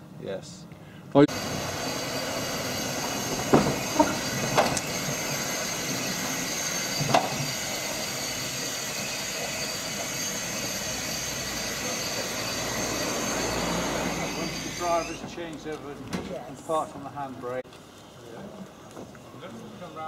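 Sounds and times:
wheels clunking on rails: 1.3 - 10.1
tram running on track: 1.3 - 15.0.

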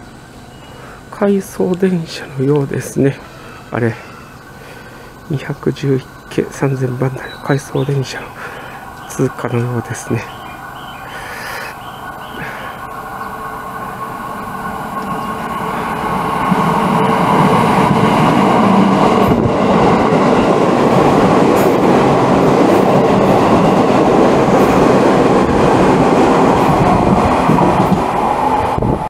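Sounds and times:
train wheels rumbling: 0.0 - 29.0
train clicks: 14.0 - 29.0.

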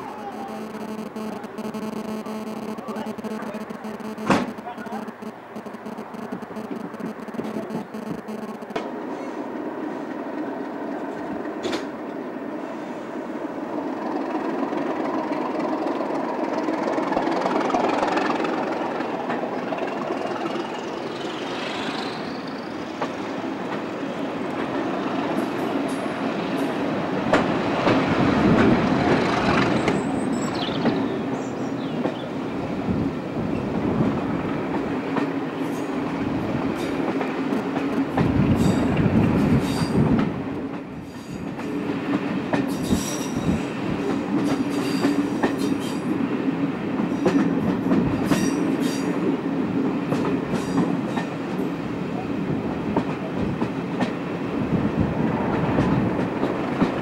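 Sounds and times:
train running drone and rumble: 5.4 - 57.0
train wheels clicking over rail joints: 10.6 - 12.0, 34.4 - 46.2, 47.0 - 51.8, 52.8 - 54.4, 55.5 - 57.0.

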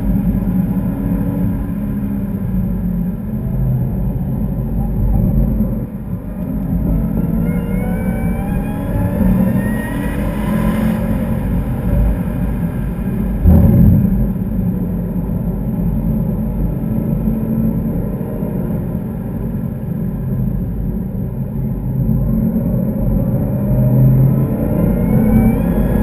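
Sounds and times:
car engine accelerating: 3.3 - 15.6, 23.2 - 26.0
loud thump: 13.4 - 14.5.

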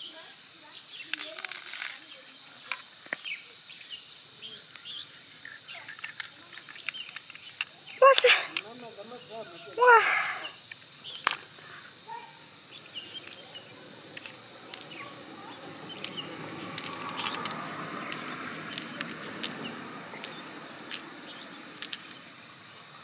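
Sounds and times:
pearls clicking together: 1.1 - 2.1, 5.4 - 8.8, 10.7 - 11.6, 13.0 - 22.4.

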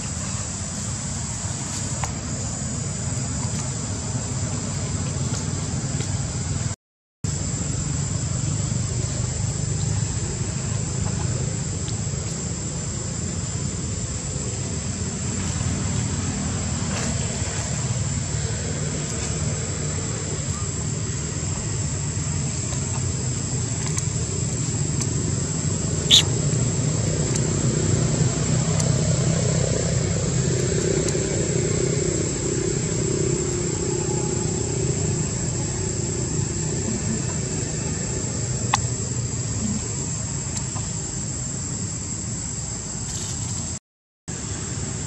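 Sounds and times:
distant engine drone: 0.0 - 43.7
high-pitched whine: 7.3 - 43.6.

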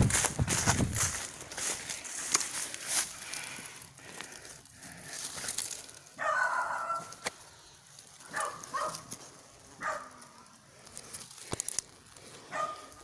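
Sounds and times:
rooster crowing: 6.2 - 7.1.

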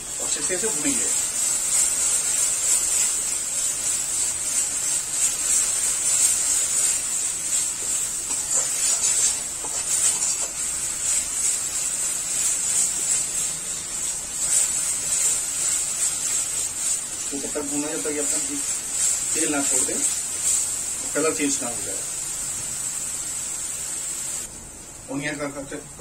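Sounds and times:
paste sizzling in hot oil: 0.0 - 26.0
metal spatula scraping pan: 7.5 - 11.6.

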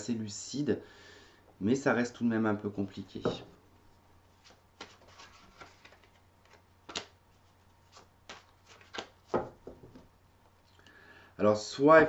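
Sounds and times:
cards being shuffled: 4.3 - 9.6.

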